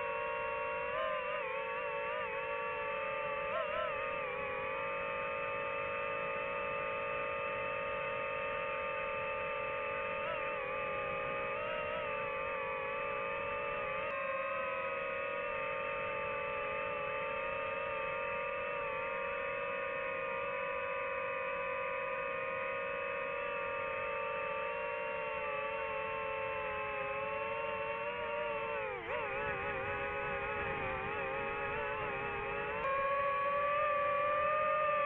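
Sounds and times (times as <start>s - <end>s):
drone propellers whining: 0.0s - 35.0s.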